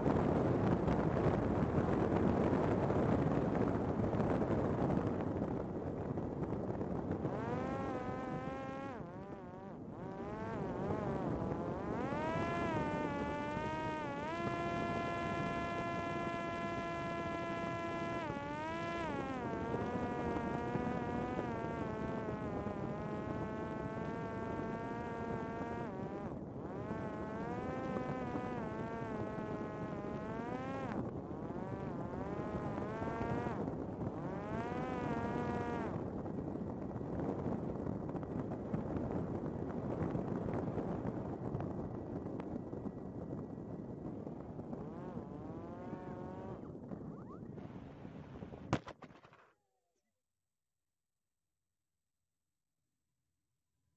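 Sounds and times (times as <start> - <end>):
drone propeller whining: 6.7 - 36.4, 43.4 - 48.0.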